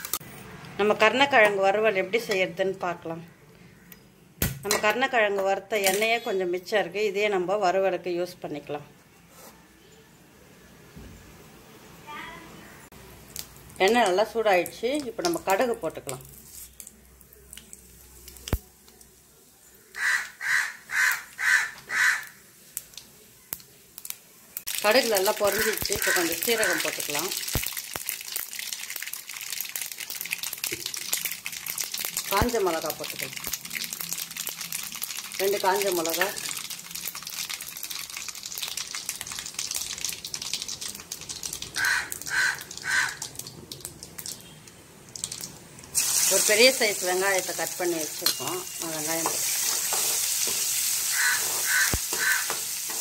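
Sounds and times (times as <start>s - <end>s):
seeds crackling in hot oil: 0.0s - 0.8s, 12.9s - 53.0s
crow cawing: 19.9s - 22.4s, 25.5s - 26.8s, 41.8s - 43.3s, 51.1s - 52.5s.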